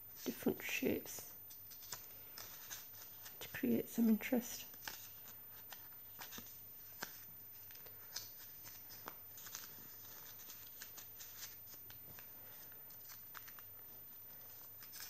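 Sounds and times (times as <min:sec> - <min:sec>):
paper pages rustling and flipping: 0:00.2 - 0:15.0.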